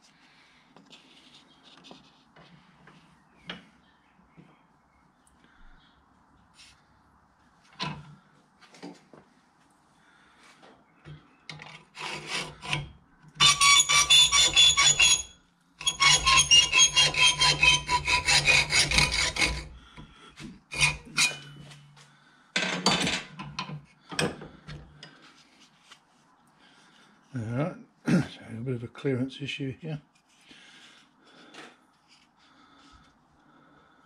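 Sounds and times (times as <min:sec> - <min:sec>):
hacksaw cutting metal: 0:11.9 - 0:19.8, 0:20.7 - 0:21.8.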